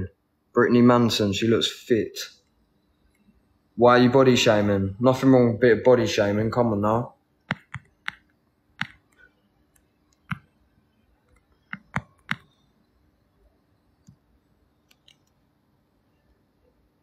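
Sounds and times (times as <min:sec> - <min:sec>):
fingers tapping phone: 0:07.4 - 0:12.8.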